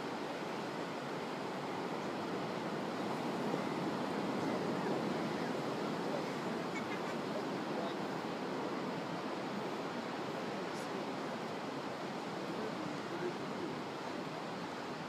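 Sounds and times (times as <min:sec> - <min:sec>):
ocean surf rushing: 0:00.0 - 0:15.0.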